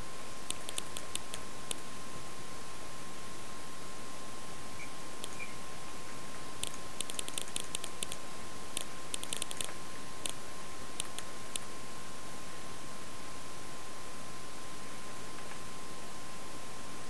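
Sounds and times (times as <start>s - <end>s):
steady hiss: 0.0s - 17.0s
quick uneven computer clicks: 0.5s - 1.4s, 6.6s - 8.2s, 8.8s - 10.4s, 11.0s - 11.7s.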